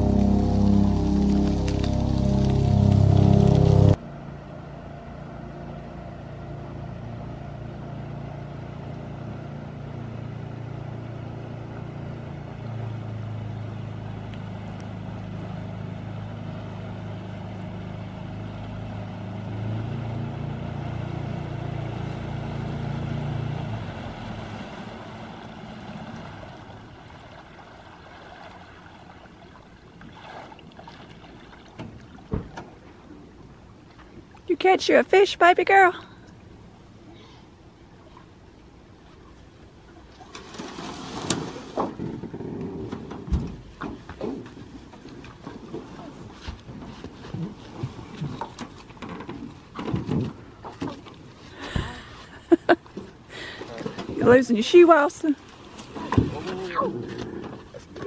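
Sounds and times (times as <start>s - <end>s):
outboard motor running: 0.0s - 34.2s.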